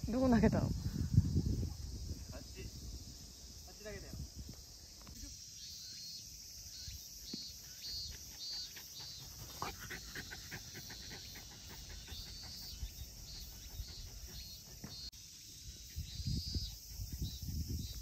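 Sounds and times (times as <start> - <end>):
high insect call: 0.0 - 18.0
dog panting: 7.9 - 15.1.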